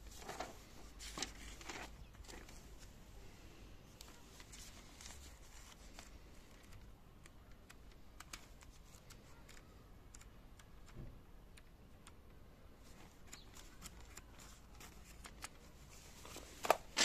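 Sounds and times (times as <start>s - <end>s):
paper pages crinkling: 0.0s - 3.0s, 4.0s - 10.3s, 12.8s - 17.0s.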